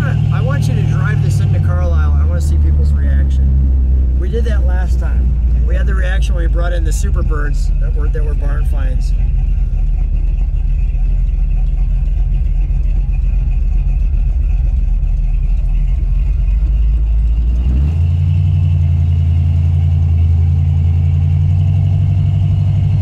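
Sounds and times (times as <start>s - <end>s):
car engine running: 0.0s - 23.0s.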